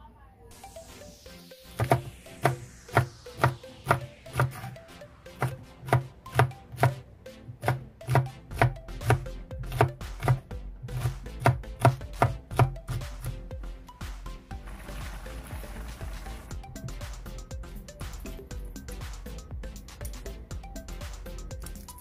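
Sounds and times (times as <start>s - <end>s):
knife chopping on wooden board: 1.8s - 4.7s, 5.4s - 7.0s, 7.6s - 13.0s.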